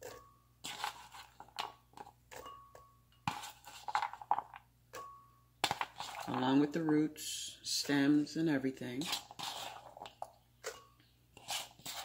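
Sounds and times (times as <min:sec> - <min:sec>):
food pieces knocking into glass jar: 0:00.0 - 0:06.4.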